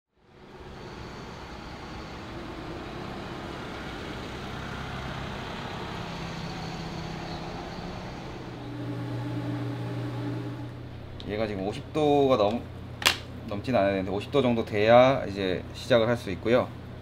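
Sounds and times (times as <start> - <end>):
traffic noise: 0.2 - 9.7.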